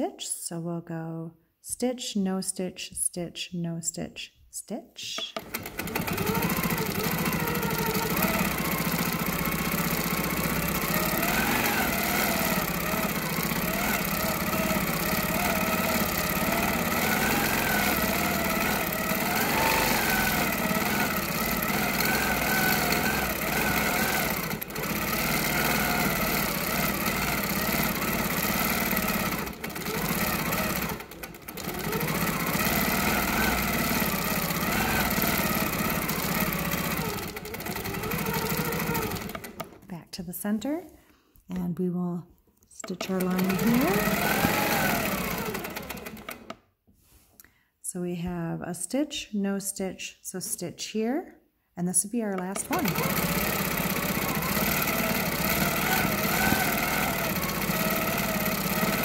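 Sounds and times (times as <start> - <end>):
quilting machine stitching: 5.2 - 39.9, 42.8 - 46.6, 52.4 - 59.0.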